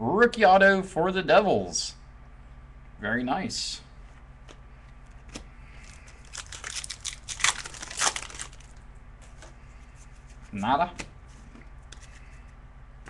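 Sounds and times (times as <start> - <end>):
foil wrapper crinkling and tearing: 5.8 - 8.8.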